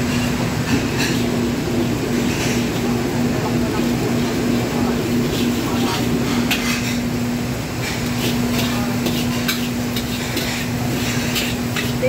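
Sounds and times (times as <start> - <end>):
kitchen hum: 0.0 - 12.0
spatula clanking against wok: 7.8 - 12.0.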